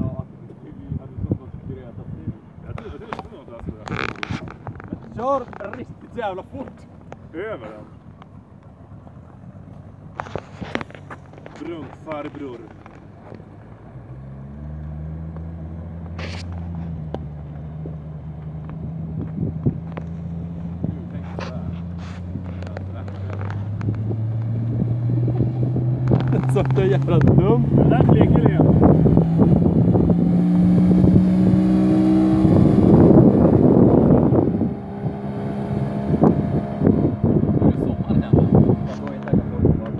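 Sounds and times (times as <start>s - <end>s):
wind buffeting microphone: 0.0s - 7.3s, 18.6s - 39.9s.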